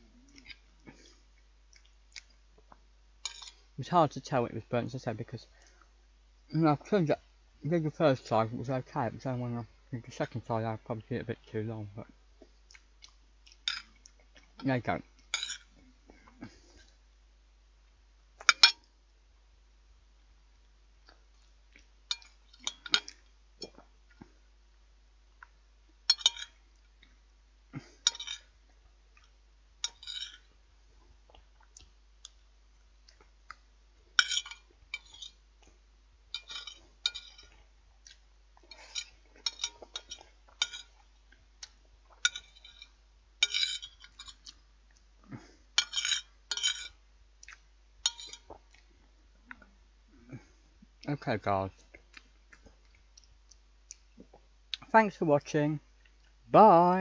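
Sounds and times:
cutlery clinking on a plate: 15.4 - 15.7, 18.4 - 18.9, 26.1 - 26.6, 28.1 - 28.5, 34.2 - 35.4, 36.3 - 37.6, 38.7 - 41.0, 42.2 - 44.4, 45.8 - 47.0, 48.0 - 48.5.

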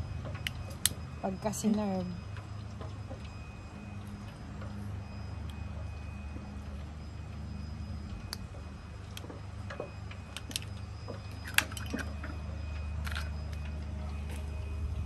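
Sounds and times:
low hum: 0.0 - 15.0
mussel shells clicking: 10.3 - 13.6.

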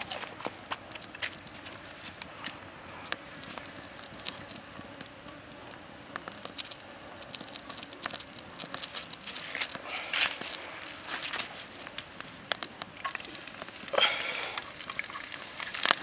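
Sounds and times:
low fire hiss: 0.0 - 16.0
wood fire crackling: 0.0 - 16.0
fire pops and snaps: 6.1 - 16.0.

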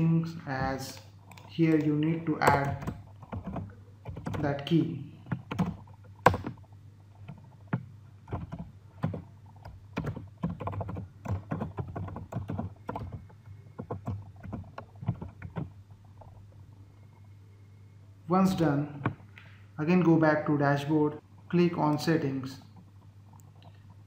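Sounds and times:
low steady hum: 0.0 - 24.0
computer keyboard typing: 0.7 - 16.3.

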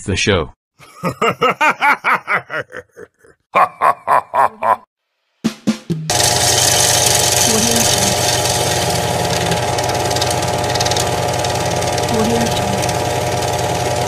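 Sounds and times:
person snickering: 0.8 - 4.9
machine drone with rattle: 6.1 - 14.0.

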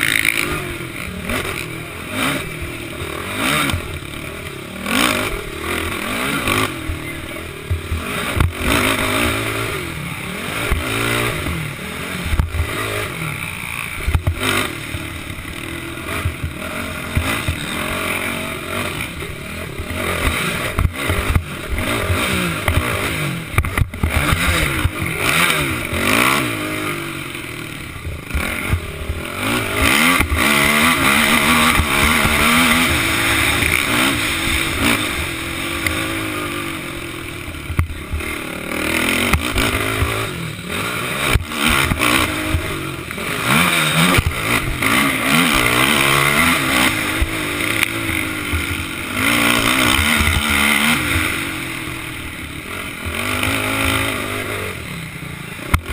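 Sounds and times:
quad engine revving: 0.0 - 55.9.

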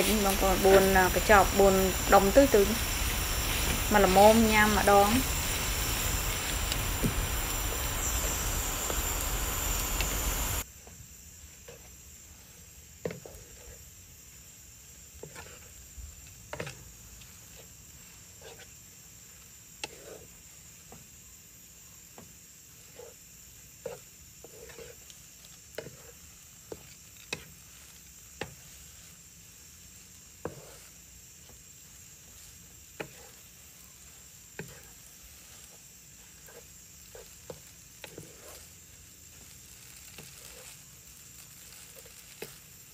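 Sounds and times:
wooden spatula knocking and scraping pan: 0.0 - 10.5, 13.0 - 13.9, 15.1 - 15.8, 16.5 - 18.7, 23.8 - 28.9, 30.3 - 42.9
noodles sizzling in a pan: 0.0 - 42.9.

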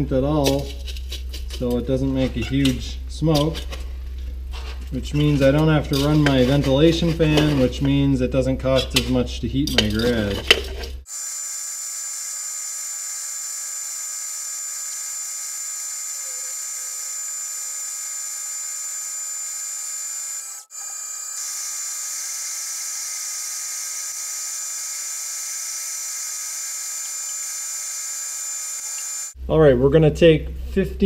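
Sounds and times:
cutting hiss: 11.1 - 29.4
lathe high whine: 11.1 - 29.4.

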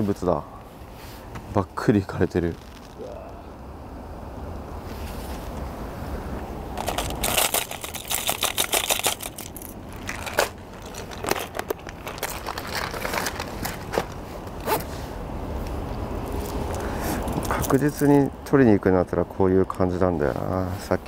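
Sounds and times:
fishing lures clicking and rattling: 6.8 - 13.9.

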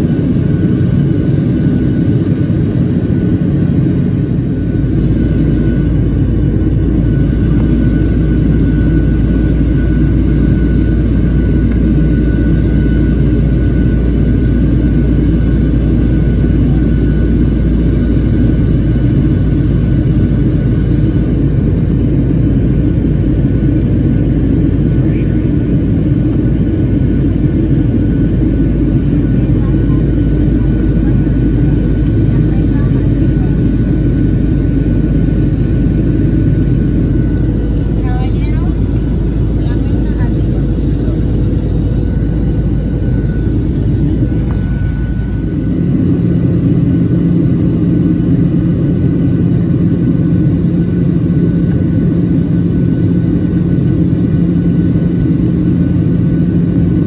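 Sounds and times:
jet engines droning: 0.0 - 57.0
faint high whine: 35.8 - 49.5.

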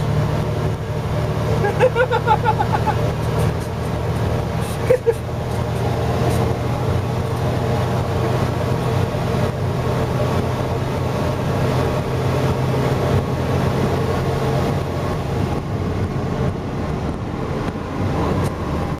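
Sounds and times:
car road and engine noise: 0.0 - 19.0.

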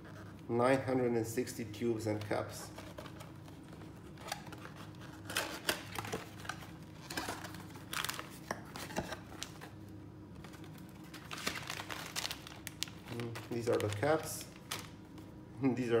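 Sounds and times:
plastic bag crinkling: 2.6 - 15.3.

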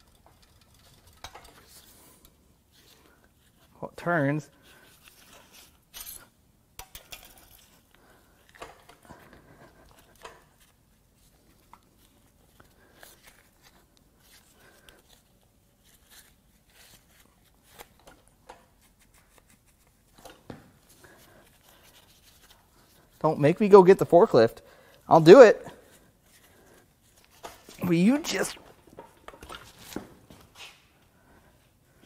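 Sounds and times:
metal tube clicking and scraping: 0.0 - 3.0.

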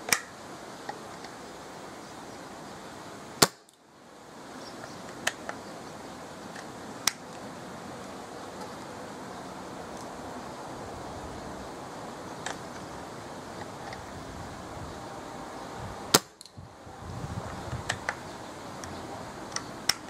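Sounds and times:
wind noise on microphone: 10.5 - 20.0
airgun cracks: 16.1 - 16.6.

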